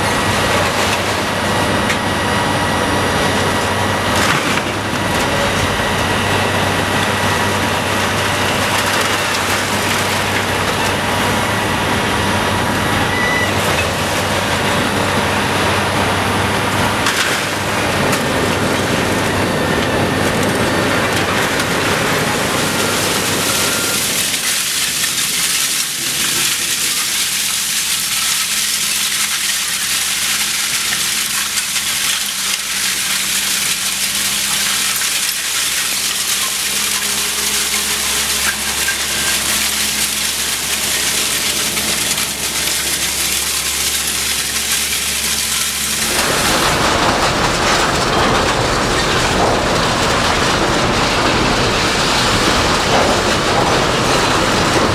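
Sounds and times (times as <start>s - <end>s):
heavy machinery grinding clatter: 0.0s - 54.9s
shredded metal pouring onto pile: 7.8s - 11.0s, 20.0s - 54.9s.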